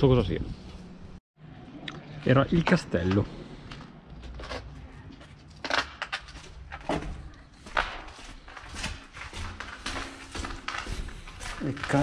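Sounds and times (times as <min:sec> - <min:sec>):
footsteps crunching on gritty floor: 0:03.2 - 0:12.0.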